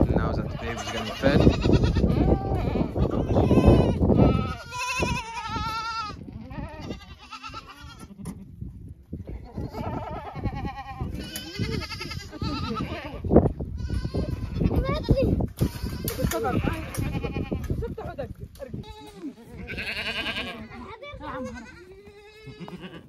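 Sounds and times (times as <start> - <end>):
young goats bleating: 0.0 - 8.6, 9.2 - 23.0.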